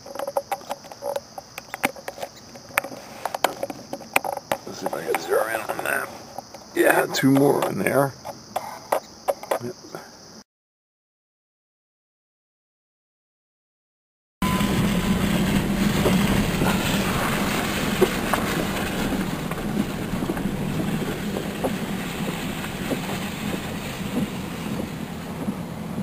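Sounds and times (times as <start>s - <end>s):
vehicle engine hum from inside cab: 14.4s - 26.0s.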